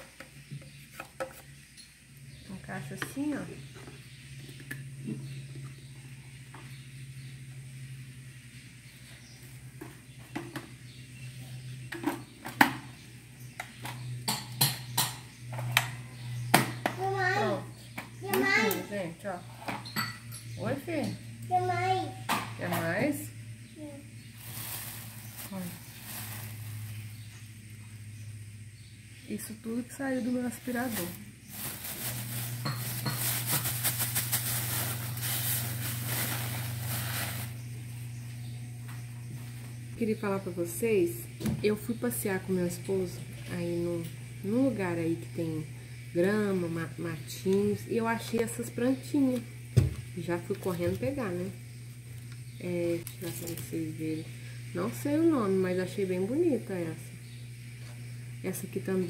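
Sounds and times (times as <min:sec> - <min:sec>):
steady low hum: 0:00.1 - 0:59.0
plastic bag crinkling: 0:24.4 - 0:27.2, 0:30.6 - 0:37.6.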